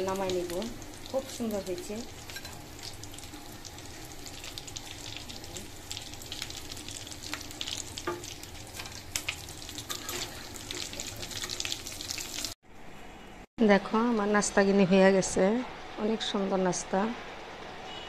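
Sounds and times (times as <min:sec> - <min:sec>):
patties sizzling in hot oil: 0:00.0 - 0:12.6.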